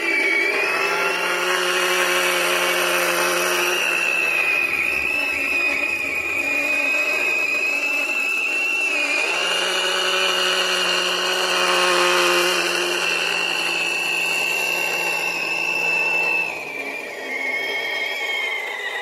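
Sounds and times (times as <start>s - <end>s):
mini chainsaw high whine: 0.0s - 19.0s
low hum: 3.7s - 8.5s.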